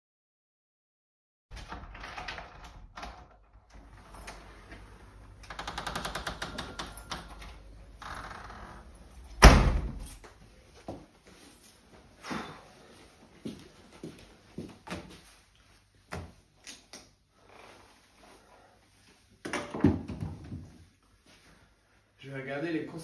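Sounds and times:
door slamming shut: 0:09.3 - 0:10.2.

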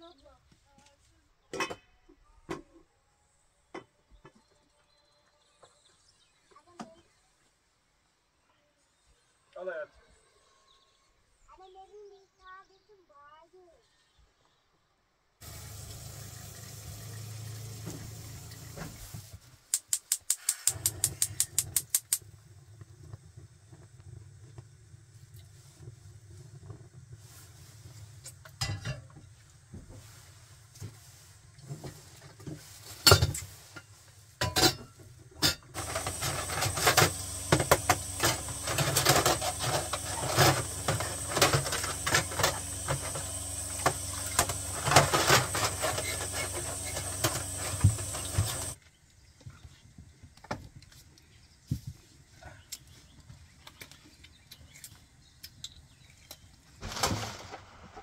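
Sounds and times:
tap running into a sink: 0:15.4 - 0:19.2
dishes and cutlery clinking: 0:34.4 - 0:37.2.

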